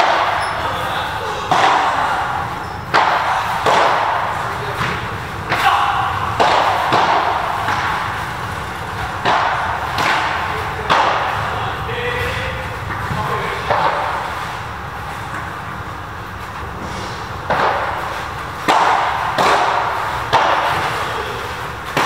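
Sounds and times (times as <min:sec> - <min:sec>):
ball bouncing on court: 0:00.0 - 0:00.6, 0:01.5 - 0:11.6
padel ball struck by rackets: 0:06.3 - 0:11.5, 0:17.5 - 0:21.1.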